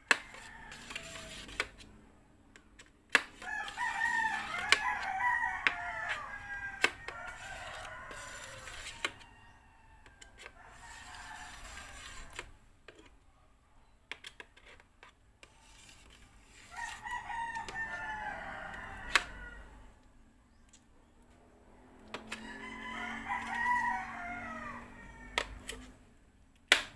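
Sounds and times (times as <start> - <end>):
rooster crowing: 0.1 - 1.5, 3.4 - 12.4, 16.5 - 20.0, 21.8 - 25.9.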